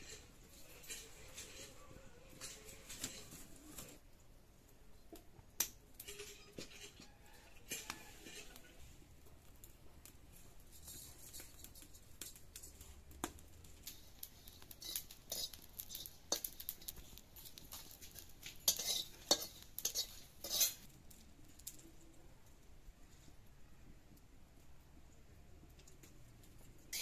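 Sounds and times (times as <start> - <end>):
metal spatula scraping iron pan: 0.0 - 4.0, 6.0 - 8.8, 13.8 - 20.9
spice seeds in hot oil: 0.0 - 27.0.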